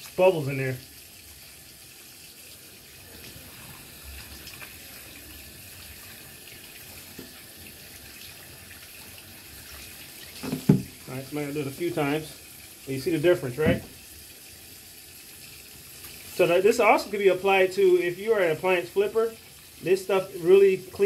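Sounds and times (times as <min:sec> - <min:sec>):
faucet running: 0:00.0 - 0:21.0
water splashing into basin: 0:03.1 - 0:11.1.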